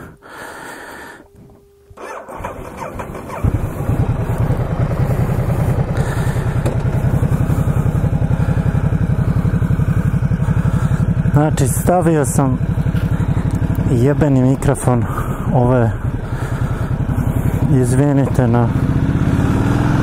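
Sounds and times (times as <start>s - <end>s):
electric starter whirring: 1.4s - 7.7s
motorcycle engine running: 2.0s - 20.0s.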